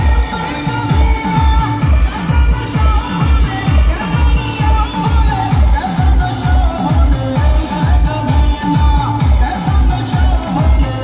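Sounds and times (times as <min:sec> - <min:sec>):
loud dance music: 0:00.0 - 0:11.0
deep kick drum: 0:00.9 - 0:11.0.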